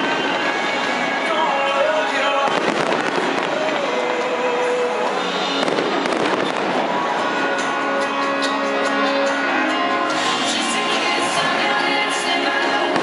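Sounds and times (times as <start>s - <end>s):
fireworks crackling and popping: 0.0s - 7.5s
music with held tones: 2.6s - 13.0s.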